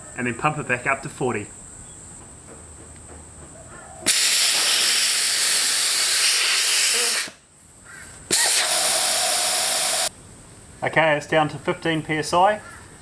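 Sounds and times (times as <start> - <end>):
compressed air hissing from tyre: 4.0 - 7.5, 8.2 - 10.2.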